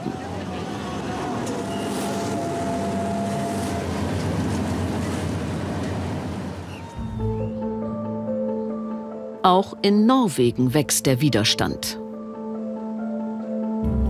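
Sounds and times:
waves: 0.0 - 7.0
motorboats running: 0.0 - 8.2
calm music: 0.4 - 14.0.

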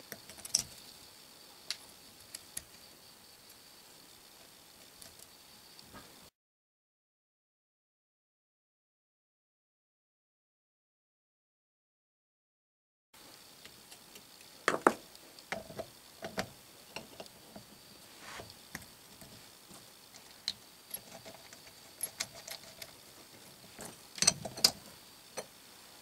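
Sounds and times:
small steel parts clicking and clinking: 0.0 - 0.9, 20.1 - 25.5.

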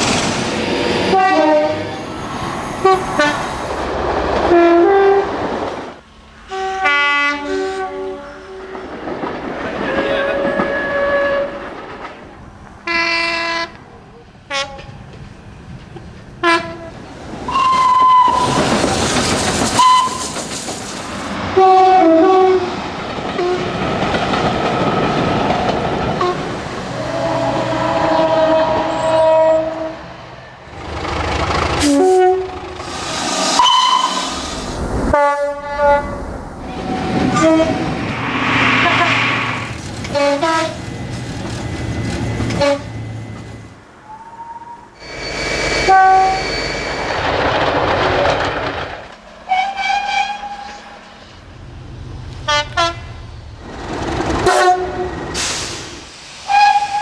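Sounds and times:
train rumble and wheel clatter: 0.0 - 57.0
two-tone train horn blasts: 1.1 - 1.9, 4.5 - 5.3, 6.5 - 8.7, 10.2 - 11.6, 12.9 - 13.8, 16.4 - 16.9, 17.5 - 18.6, 19.8 - 20.2, 21.6 - 22.7, 26.2 - 30.1, 31.8 - 32.6, 33.6 - 34.3, 35.1 - 36.2, 37.3 - 37.9, 40.1 - 40.8, 42.6 - 42.9, 45.8 - 46.5, 49.5 - 50.8, 52.5 - 53.1, 54.4 - 55.2.

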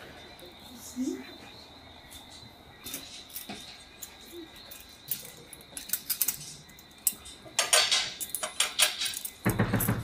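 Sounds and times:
plates and utensils clicking: 2.9 - 10.0
tableware clattering: 2.9 - 10.0.

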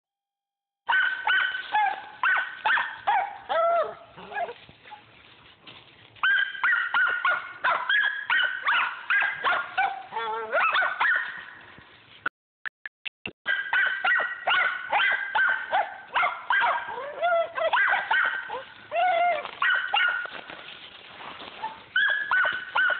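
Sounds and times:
dogs barking high-pitched: 0.9 - 5.1, 6.2 - 11.5, 13.4 - 20.5, 21.5 - 22.9.

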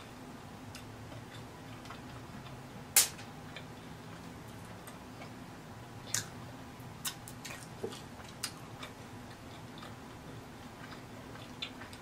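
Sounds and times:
close chewing with mouth clicks: 7.0 - 12.0.

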